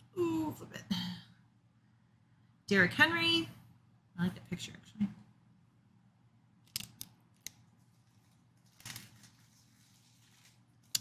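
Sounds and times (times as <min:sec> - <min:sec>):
faint steady hum: 0:00.0 - 0:11.0
cards rustling: 0:06.7 - 0:11.0.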